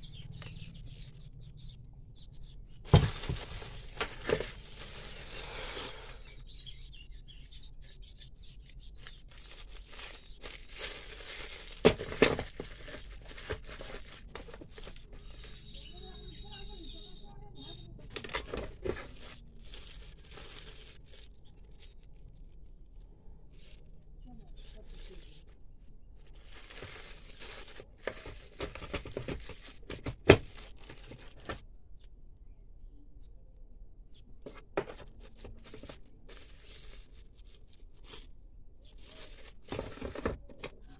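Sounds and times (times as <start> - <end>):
plastic wrapping crinkling: 2.9 - 6.4, 8.6 - 16.2, 18.0 - 25.6, 26.2 - 31.6, 35.0 - 40.5.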